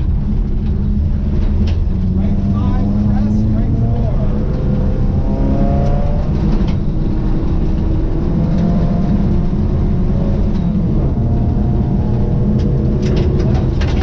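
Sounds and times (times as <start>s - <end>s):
tyres rumbling on gravel: 0.0s - 5.0s, 9.4s - 14.0s
car engine running hard: 0.0s - 14.0s.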